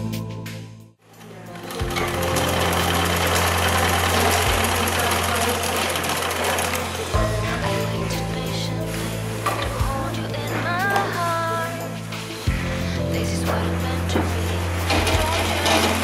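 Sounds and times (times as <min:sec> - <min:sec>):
background music: 0:00.0 - 0:16.0
sewing machine clatter: 0:01.2 - 0:07.3, 0:14.8 - 0:16.0.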